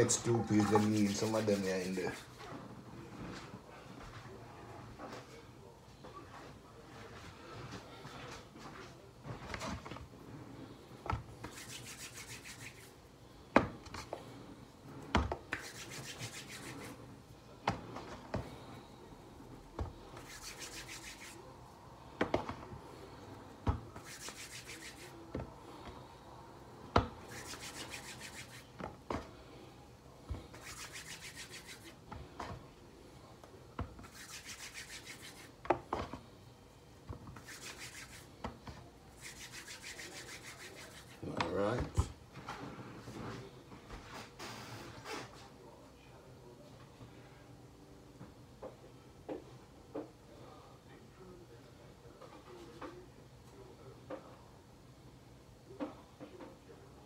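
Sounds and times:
hands rubbing dough: 0.0 - 3.5, 6.3 - 13.0, 13.8 - 26.1, 27.0 - 29.6, 30.2 - 32.4, 33.9 - 36.1, 37.3 - 38.4, 39.1 - 41.6.

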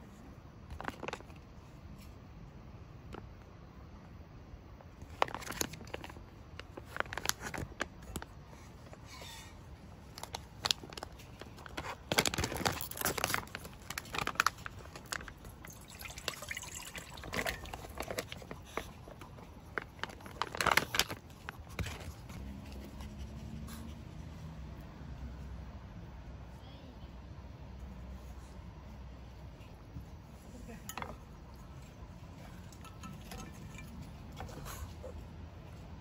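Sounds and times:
plastic pouch crinkling: 5.0 - 8.3, 10.1 - 15.6, 17.1 - 22.3
broth pouring and splashing: 13.9 - 19.2.

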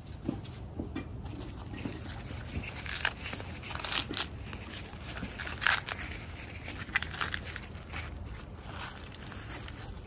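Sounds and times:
corn husk leaves tearing: 1.3 - 10.0.

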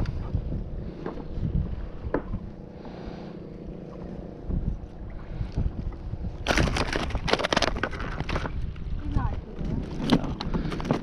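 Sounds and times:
wind rumbling on microphone: 0.0 - 11.0
handling crackles and rustles: 4.8 - 11.0.

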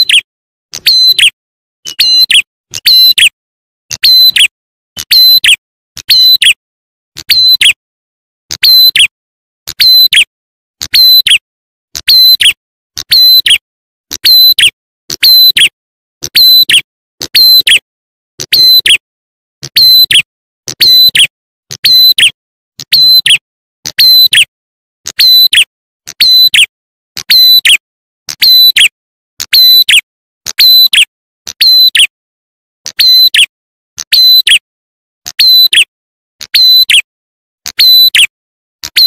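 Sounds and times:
bird lure call chirps: 0.0 - 3.3, 3.9 - 6.6, 7.2 - 7.8, 9.7 - 11.4, 18.4 - 19.0, 19.7 - 24.5, 25.1 - 27.8, 28.4 - 32.1, 32.9 - 34.6, 35.3 - 37.1, 37.7 - 38.3.

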